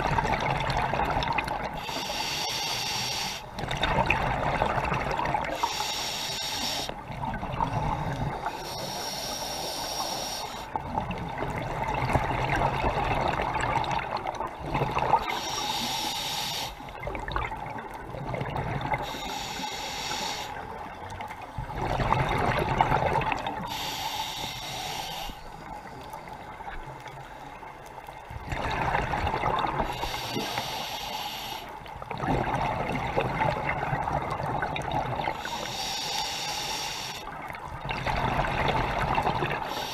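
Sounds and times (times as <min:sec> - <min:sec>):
rush of exhaled bubbles: 0:00.0 - 0:01.9, 0:03.6 - 0:05.7, 0:10.8 - 0:15.4, 0:17.0 - 0:19.3, 0:21.6 - 0:23.7, 0:28.3 - 0:30.5, 0:32.0 - 0:35.7, 0:37.3 - 0:39.9
regulator hissing inhale: 0:01.8 - 0:03.6, 0:05.5 - 0:07.0, 0:07.9 - 0:10.8, 0:15.3 - 0:17.0, 0:19.0 - 0:20.8, 0:23.6 - 0:26.5, 0:29.8 - 0:32.0, 0:35.3 - 0:37.4, 0:39.6 - 0:39.9.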